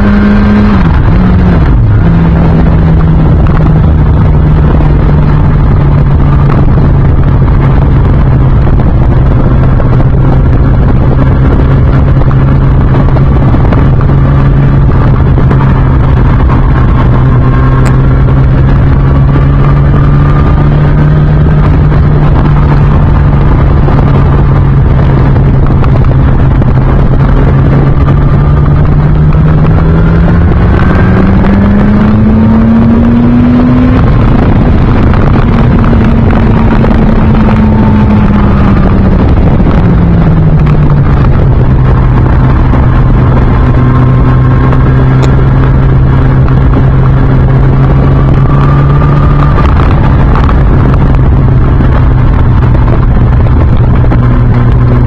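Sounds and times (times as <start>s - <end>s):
motorcycle engine revving: 0.0s - 55.0s
wind and road noise: 0.0s - 55.0s.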